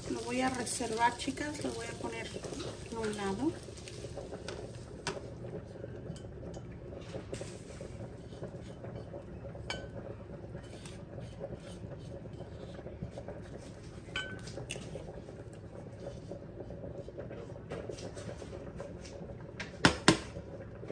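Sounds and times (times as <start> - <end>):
low kitchen hum: 0.0 - 20.9
utensils clinking on cookware: 9.7 - 10.0, 14.1 - 15.0.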